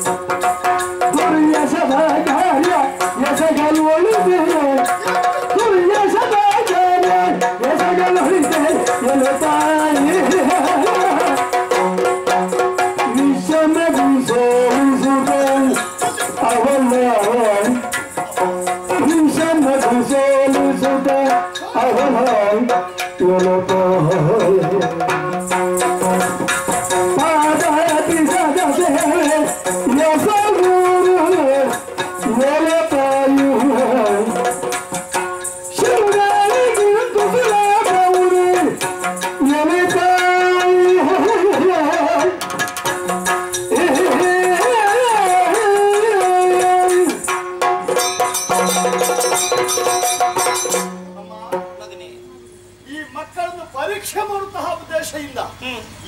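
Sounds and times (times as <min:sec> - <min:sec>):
small hand cymbals ringing: 0:00.0 - 0:53.7
drumming: 0:00.0 - 0:55.1
person singing: 0:01.0 - 0:35.1, 0:35.7 - 0:42.6, 0:43.6 - 0:47.3.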